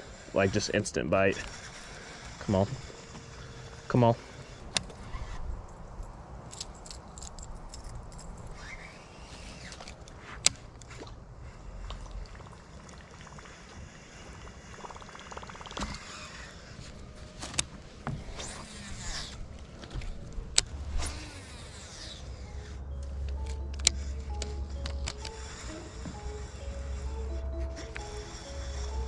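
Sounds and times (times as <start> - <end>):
faint outdoor background: 0.0 - 29.0
fishing reel clicking and ticking: 0.1 - 4.8, 11.6 - 16.6, 20.6 - 29.0.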